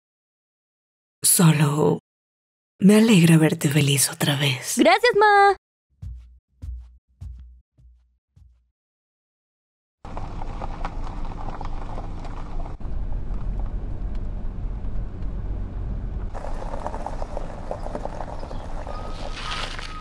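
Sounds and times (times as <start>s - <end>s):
car engine and road rumble: 10.1s - 20.0s.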